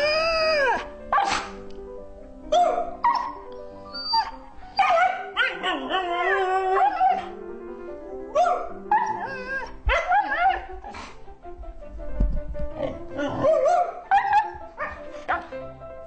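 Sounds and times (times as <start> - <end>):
husky howling: 0.0 - 1.5, 4.0 - 7.5, 8.1 - 10.8
background music: 0.0 - 16.0.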